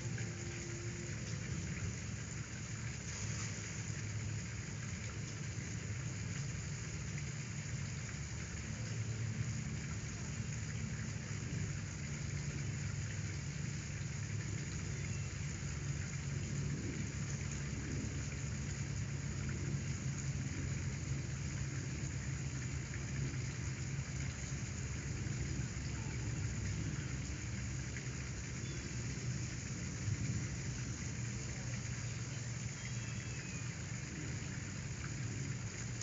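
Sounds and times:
steady hiss: 0.0s - 36.0s.

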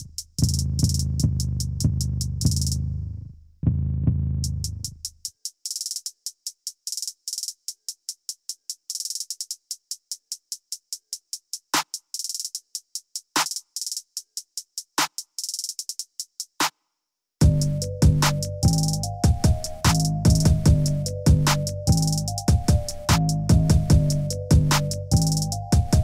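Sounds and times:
heavy drum hits: 17.4s - 21.6s
fast high ticking beat: 17.4s - 26.0s.

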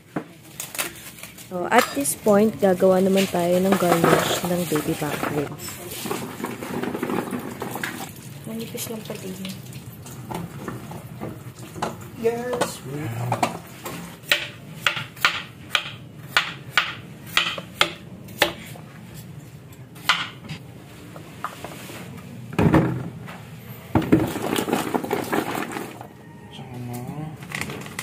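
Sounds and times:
knife chopping on cutting board: 14.2s - 18.7s.

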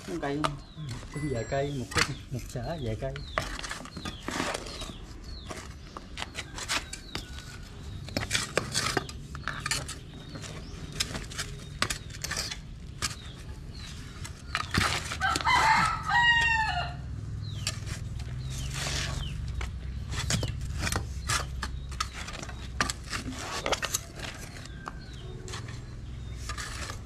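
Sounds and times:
rooster crowing: 15.2s - 17.1s.

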